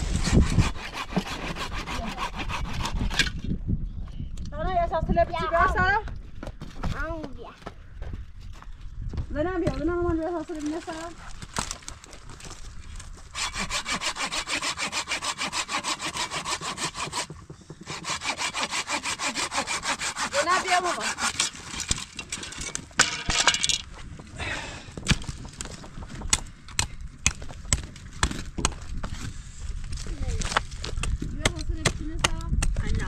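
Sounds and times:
hand saw cutting wood: 0.0s - 3.4s, 13.3s - 22.8s.

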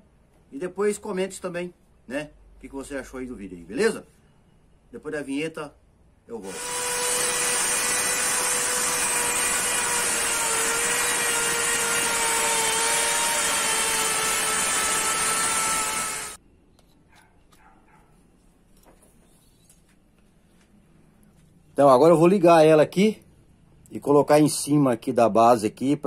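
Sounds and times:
power tool whining: 6.4s - 16.4s.

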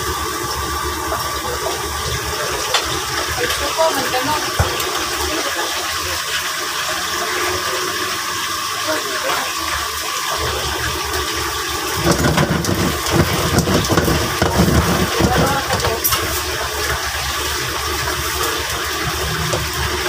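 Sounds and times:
gas burner hissing: 0.0s - 20.0s
spatula knocking and scraping wok: 12.0s - 16.5s.

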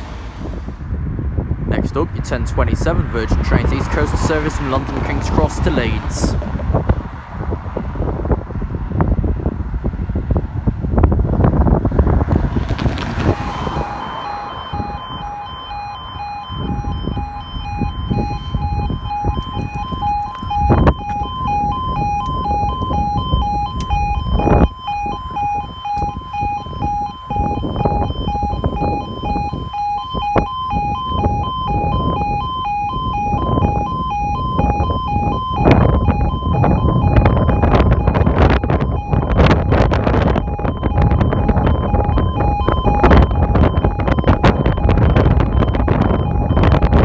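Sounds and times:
wind buffeting microphone: 0.0s - 47.0s
level crossing alarm two-tone warble: 13.4s - 47.0s.

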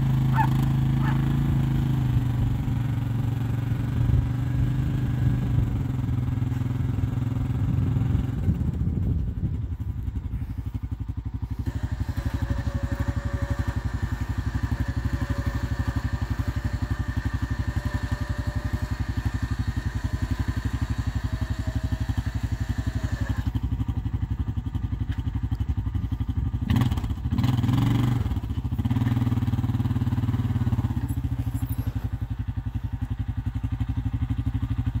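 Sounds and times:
quad bike engine idling: 0.0s - 35.0s
lift motor whine: 11.5s - 23.6s
clatter: 22.8s - 35.0s.

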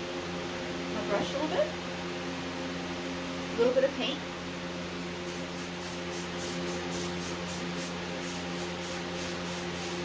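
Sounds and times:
electric fan humming: 0.0s - 10.0s.

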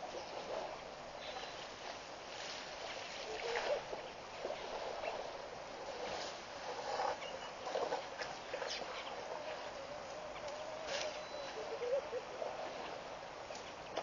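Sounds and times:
steady outdoor hiss: 0.0s - 14.0s
warbling animal call: 3.2s - 6.0s, 6.6s - 12.9s.

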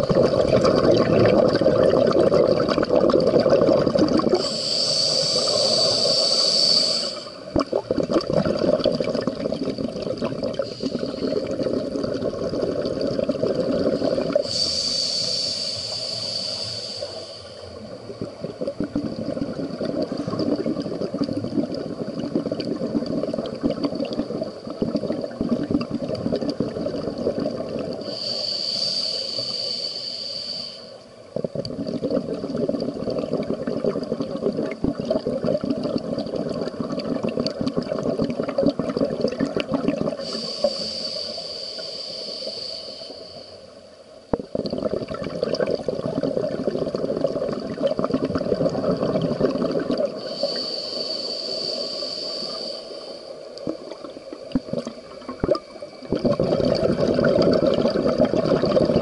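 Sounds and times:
exhaled bubbles underwater: 0.0s - 28.4s, 31.1s - 43.5s, 44.3s - 52.7s, 53.3s - 59.0s
hissing regulator inhalation: 4.3s - 7.5s, 10.6s - 11.6s, 13.7s - 18.0s, 28.0s - 31.1s, 40.1s - 43.8s, 50.0s - 54.0s.

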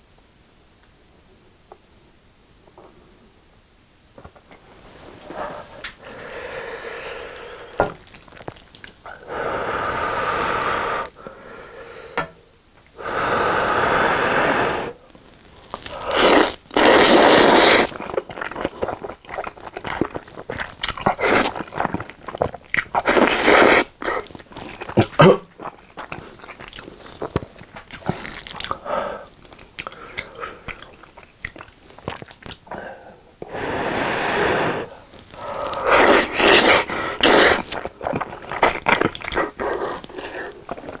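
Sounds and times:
wet chewing: 5.9s - 9.2s, 15.5s - 32.7s, 35.1s - 41.0s
noodles slurping: 15.7s - 32.6s, 33.5s - 41.0s.

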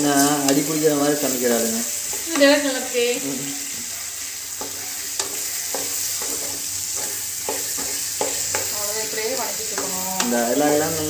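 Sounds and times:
vegetables sizzling in oil: 0.0s - 11.0s
spatula scraping a pan: 3.6s - 11.0s.

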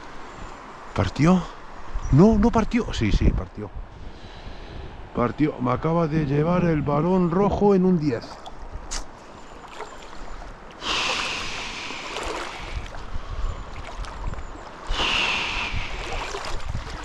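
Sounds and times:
steady stream rushing: 0.0s - 3.1s, 3.7s - 17.0s
water sloshing around wading legs: 8.1s - 11.3s, 12.0s - 14.9s, 16.0s - 17.0s.

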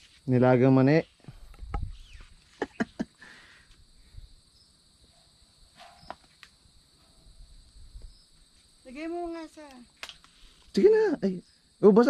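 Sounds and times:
high-pitched insect chirring: 0.3s - 3.1s, 5.8s - 12.0s.

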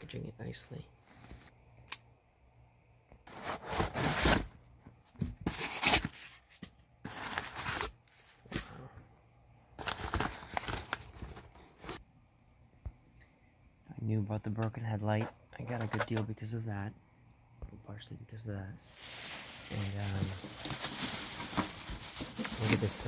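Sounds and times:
cardboard and plastic rustling: 3.3s - 8.8s, 9.8s - 12.0s, 18.8s - 23.0s.

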